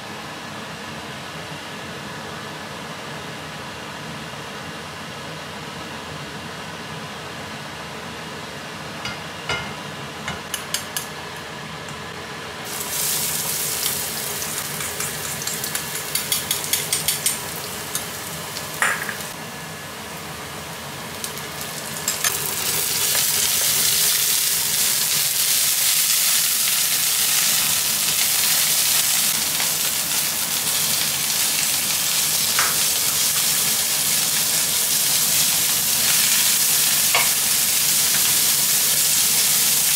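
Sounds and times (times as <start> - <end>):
garlic sizzling in hot oil: 12.6 - 19.4, 20.0 - 39.9
meat sizzling while stir-fried: 12.6 - 19.4, 20.0 - 39.9.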